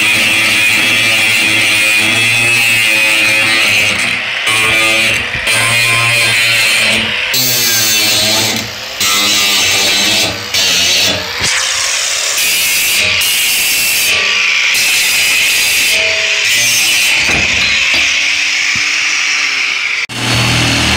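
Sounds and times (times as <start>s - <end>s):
angle grinder cutting steel: 0.0s - 20.9s.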